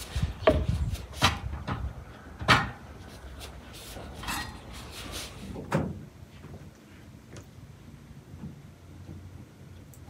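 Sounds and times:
metal samovar knocks and clanks: 0.4 - 2.9.

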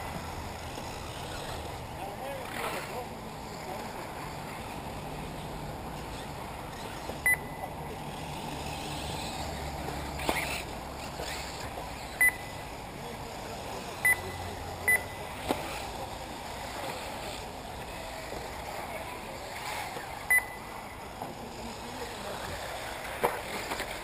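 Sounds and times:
background noise: 0.0 - 24.0
short high electronic beeps: 7.2 - 7.6, 12.2 - 12.6, 14.0 - 15.2, 20.3 - 20.7.

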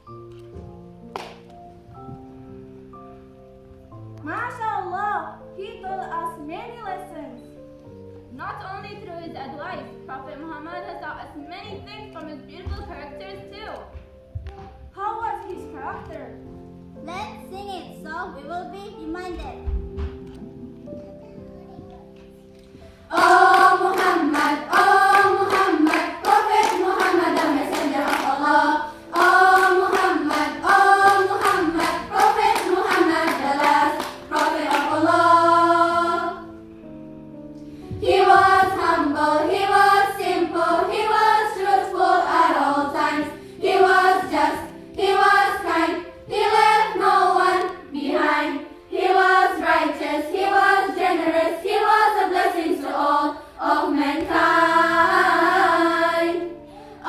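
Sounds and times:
hand claps: 1.1 - 1.5, 23.2 - 28.4, 29.1 - 35.0
girls choir singing: 22.8 - 36.7, 37.8 - 57.0.

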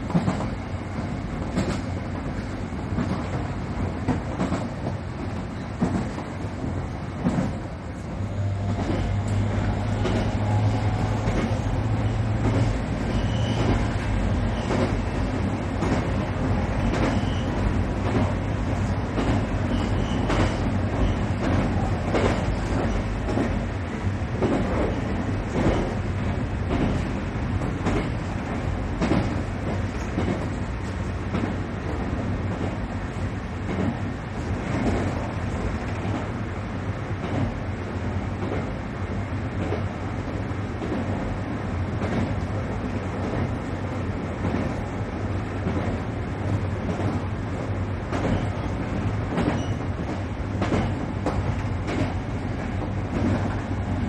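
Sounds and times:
train wheels running on rail: 0.0 - 54.0
wheels clacking over rail joints: 48.1 - 54.0.

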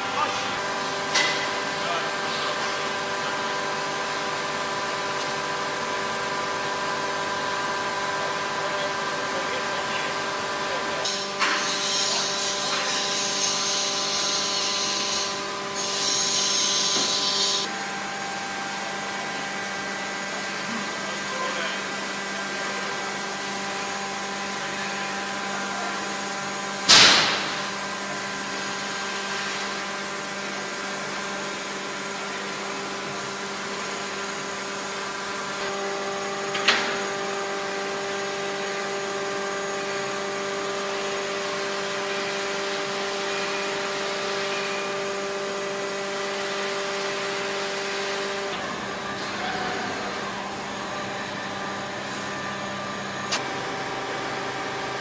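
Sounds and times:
industrial machinery hum: 0.0 - 55.0
loud sharp bang: 26.9 - 27.6.

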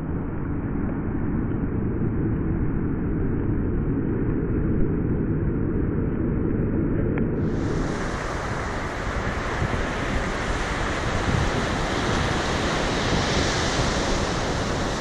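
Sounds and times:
ocean surf breaking: 7.4 - 15.0.

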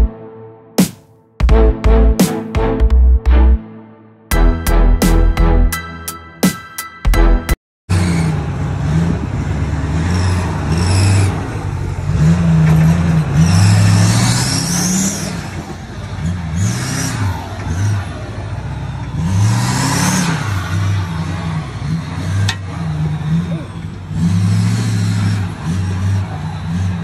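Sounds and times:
truck engine revving: 7.9 - 27.0.

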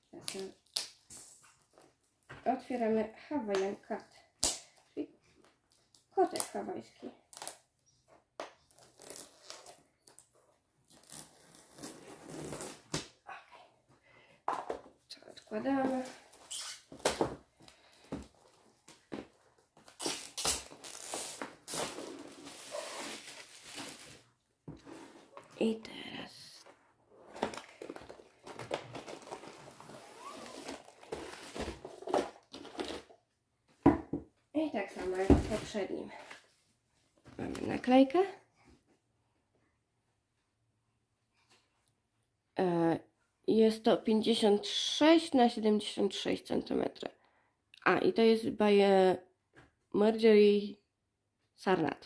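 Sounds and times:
shrink wrap crinkling and tearing: 19.8 - 24.3, 27.5 - 33.1.

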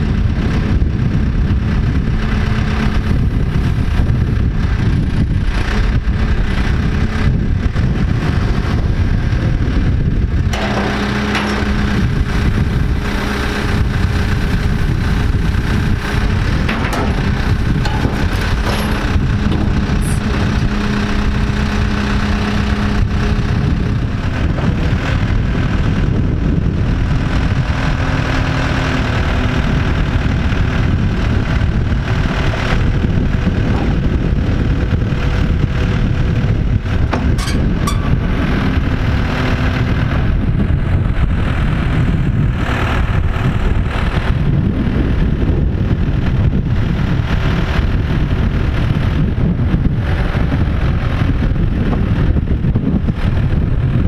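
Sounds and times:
diesel engine running under load: 0.0 - 54.0
metal container scraping on rollers: 10.5 - 14.6, 15.2 - 21.6, 37.1 - 38.8.

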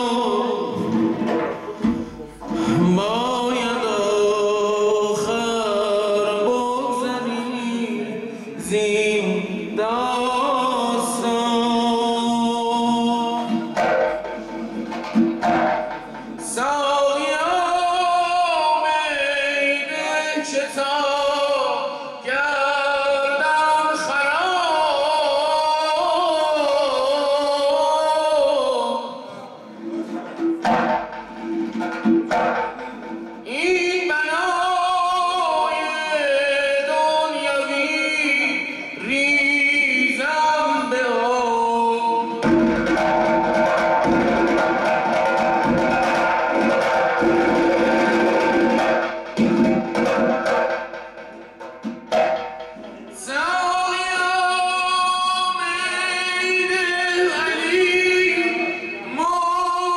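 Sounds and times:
fast goblet drum drumming: 0.0 - 4.4, 12.8 - 18.8, 29.8 - 35.6, 42.3 - 54.9.

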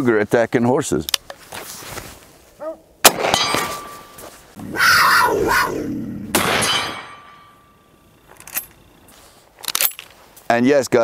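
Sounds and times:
rifle shot crack: 3.0 - 4.0, 6.3 - 7.2
harsh animal cry: 4.6 - 6.4.

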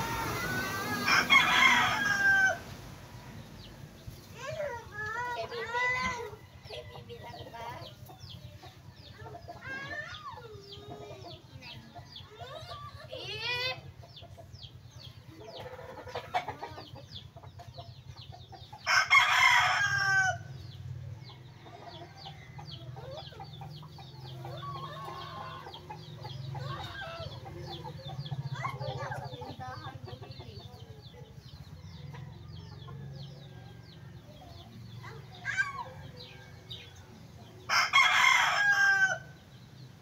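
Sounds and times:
roosters crowing: 0.0 - 8.4, 18.6 - 40.0
chickens clucking: 0.0 - 40.0.

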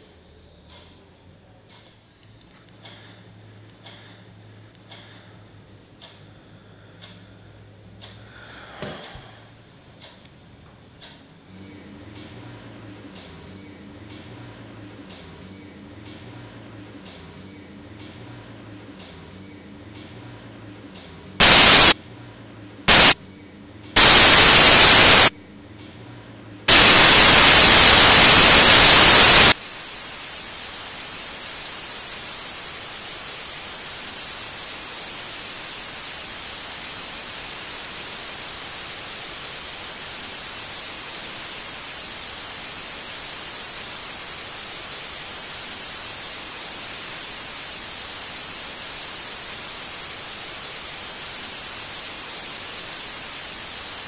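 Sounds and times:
television static hiss: 0.0 - 54.0
loud white noise bursts: 21.4 - 22.0, 22.8 - 23.2, 24.0 - 25.3, 26.6 - 54.0.

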